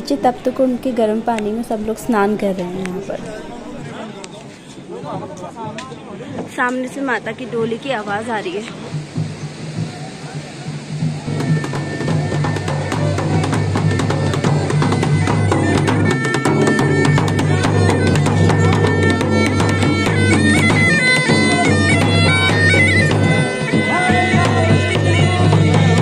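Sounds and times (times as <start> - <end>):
dhol drums beating: 6.4 - 26.0
bagpipe melody over drone: 10.7 - 26.0.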